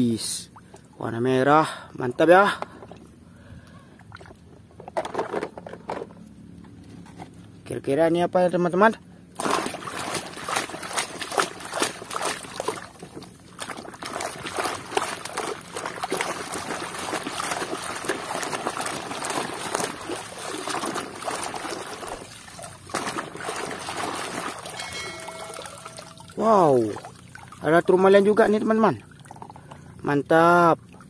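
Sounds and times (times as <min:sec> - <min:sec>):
muddy water splashing: 0:09.3 - 0:31.0.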